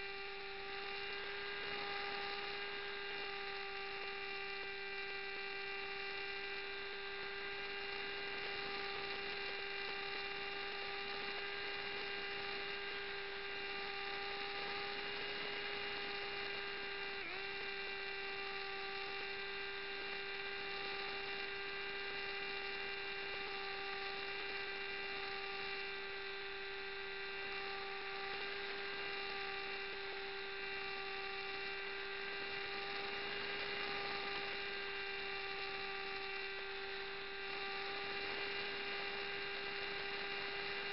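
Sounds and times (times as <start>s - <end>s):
model aircraft motor whine: 0.0s - 40.9s.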